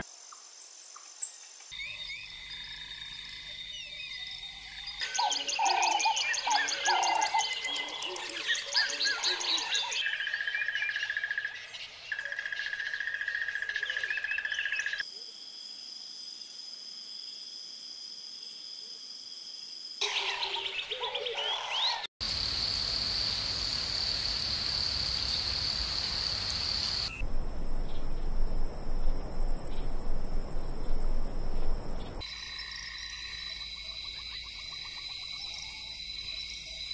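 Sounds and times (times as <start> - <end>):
bird chirps and trills: 1.8 - 15.0
insects chorusing: 20.0 - 36.9.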